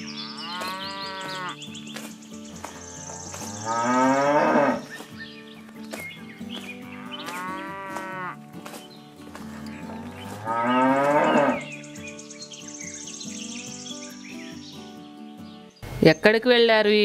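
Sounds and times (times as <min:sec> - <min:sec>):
cattle mooing: 0:00.1 - 0:01.6, 0:03.0 - 0:04.9, 0:06.9 - 0:08.4, 0:09.7 - 0:11.7.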